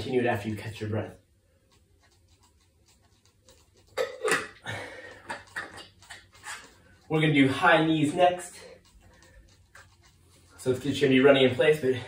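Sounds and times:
man gulping water: 0:03.9 - 0:06.2
man breathing hard: 0:04.6 - 0:05.3.

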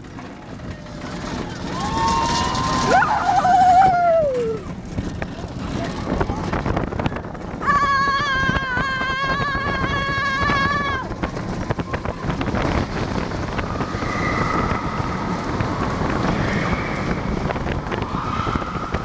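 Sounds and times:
roller coaster car rumble and rattle: 0:00.0 - 0:19.0
wind on the microphone: 0:00.0 - 0:19.0
high-pitched squeal: 0:13.7 - 0:19.0.

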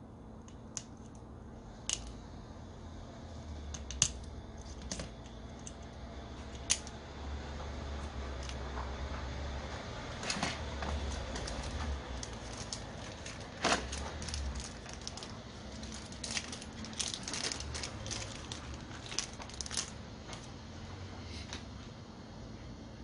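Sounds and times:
low hum: 0:00.0 - 0:23.0
small parts clicking and tapping: 0:00.4 - 0:02.2, 0:03.7 - 0:07.0, 0:10.9 - 0:20.5.

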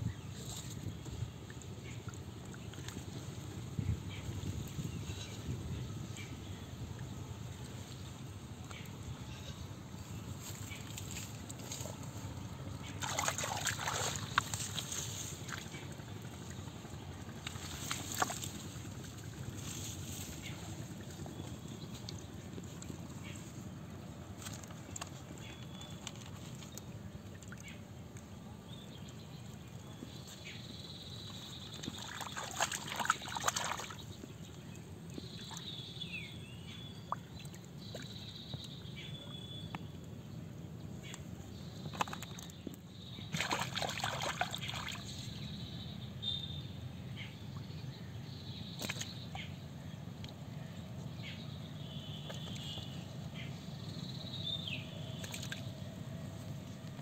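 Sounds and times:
hands splashing in muddy water: 0:13.0 - 0:15.8, 0:31.7 - 0:34.1, 0:43.3 - 0:45.1.

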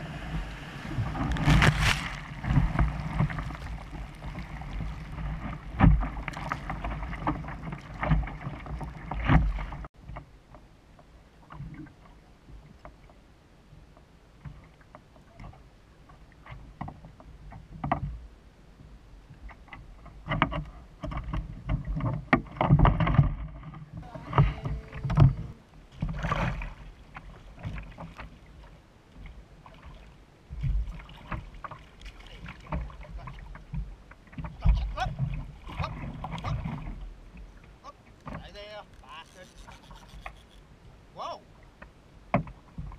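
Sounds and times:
surf rushing and splashing: 0:00.0 - 0:09.9, 0:23.9 - 0:28.8
wind on microphone: 0:23.9 - 0:26.6.

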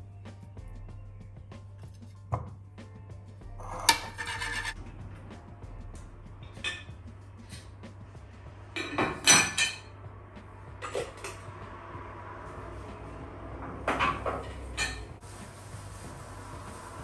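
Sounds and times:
dishes clinking on wire rack: 0:08.8 - 0:09.9.

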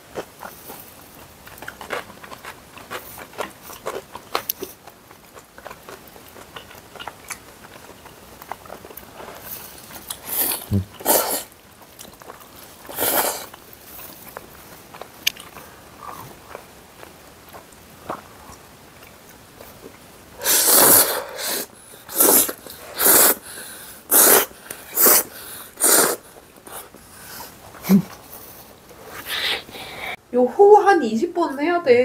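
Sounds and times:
noodles slurped: 0:00.1 - 0:16.7, 0:20.4 - 0:29.7
chewing and mouth sounds: 0:00.1 - 0:21.1
loud bursts of breath: 0:20.4 - 0:26.3, 0:29.2 - 0:30.2.

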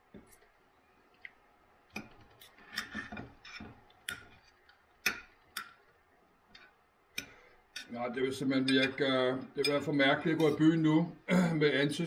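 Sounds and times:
knife and fork scraping a plate: 0:02.4 - 0:04.4.

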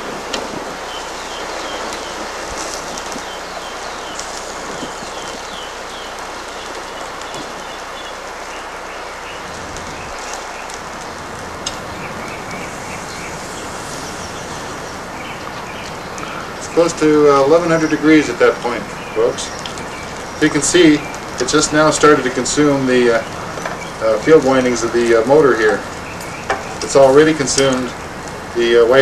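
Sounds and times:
fire hissing and crackling: 0:00.0 - 0:29.0
small bird chirping: 0:00.8 - 0:21.7.

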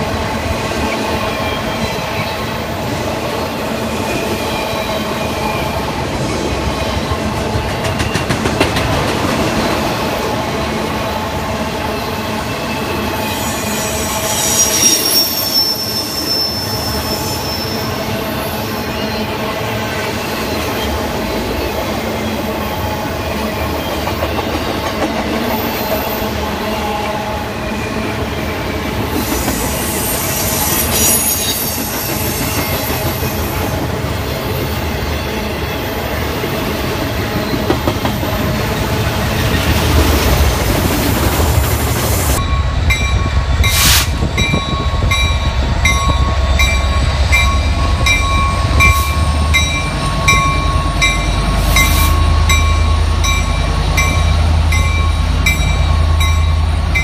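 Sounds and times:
freight train cars rolling: 0:00.0 - 0:57.0
rail clatter: 0:07.1 - 0:10.0
wheel squeal: 0:13.2 - 0:18.0, 0:29.2 - 0:33.1
pulsing high tone: 0:13.3 - 0:18.0.

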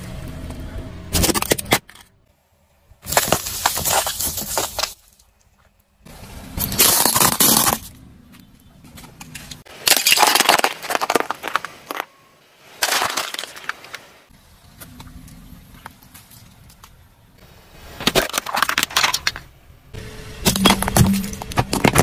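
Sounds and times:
tyre crushing plastic and ceramic: 0:01.1 - 0:02.3, 0:03.0 - 0:05.4, 0:06.6 - 0:08.0, 0:09.0 - 0:12.2, 0:12.8 - 0:14.0, 0:17.9 - 0:19.6, 0:20.4 - 0:22.0.

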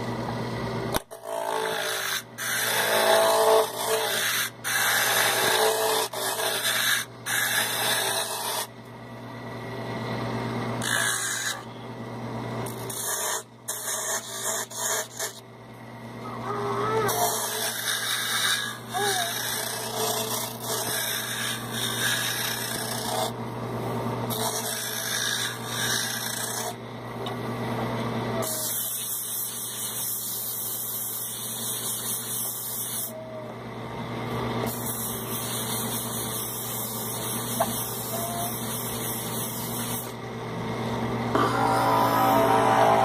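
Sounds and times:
chisel scraping wood: 0:01.2 - 0:08.7, 0:12.7 - 0:15.4, 0:17.1 - 0:23.3, 0:34.7 - 0:40.1
lathe motor hum: 0:38.9 - 0:43.0.

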